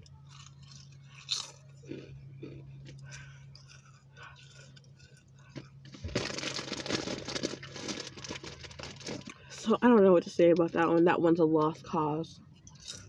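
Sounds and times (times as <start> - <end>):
crunchy snack being chewed: 0.0 - 9.5, 12.7 - 13.0
close crackling and crinkling: 0.0 - 11.9
low steady hum: 0.0 - 13.0.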